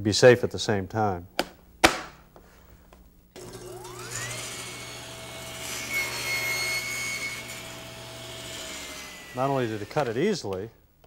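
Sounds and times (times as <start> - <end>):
table saw whining: 3.4 - 10.4
saw blade cutting wood: 3.8 - 10.4.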